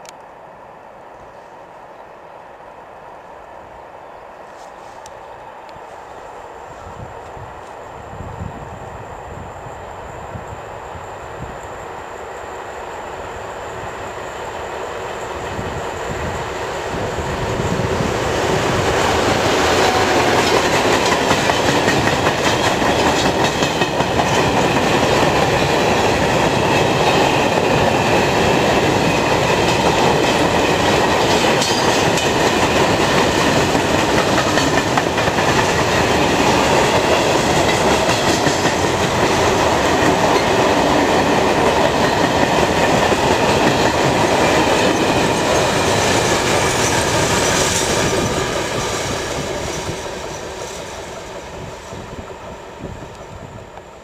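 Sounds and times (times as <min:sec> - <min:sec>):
diesel locomotives passing: 0:00.0 - 0:54.0
train wheels clattering on rails: 0:15.4 - 0:52.2.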